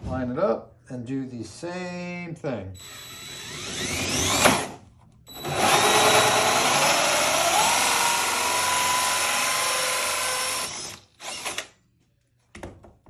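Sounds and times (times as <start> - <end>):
drill hole saw grinding metal: 2.8 - 11.7.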